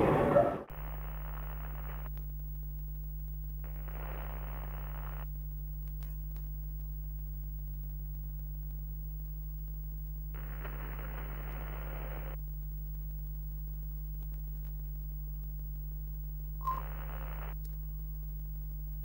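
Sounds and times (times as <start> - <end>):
low electrical hum: 0.0 - 19.0
television static hiss: 0.0 - 19.0
click: 1.3 - 2.3, 16.6 - 17.8.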